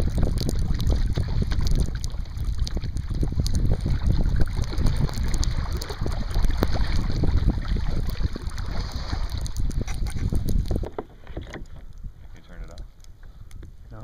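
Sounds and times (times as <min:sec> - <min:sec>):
water slapping against kayak hull: 0:00.0 - 0:13.4
wind buffeting microphone: 0:00.0 - 0:14.0.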